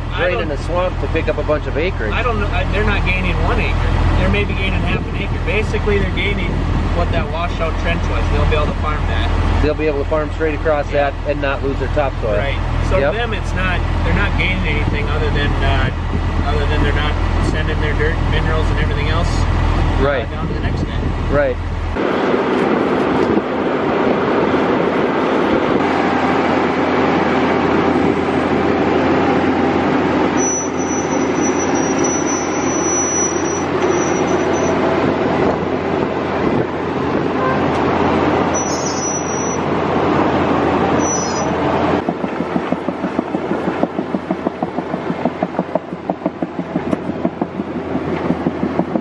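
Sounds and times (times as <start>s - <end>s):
thin high whine: 30.4s - 34.8s
machine engine running under load: 40.2s - 49.0s
plow dragging through soil: 40.2s - 49.0s.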